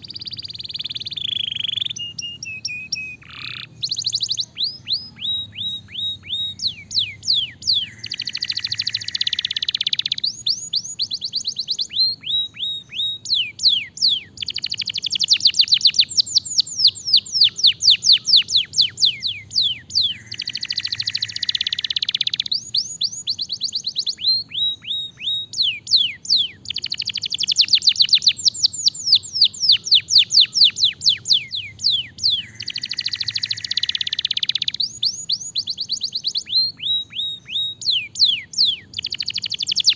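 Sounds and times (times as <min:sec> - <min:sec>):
canary singing: 0:00.0 - 0:39.9.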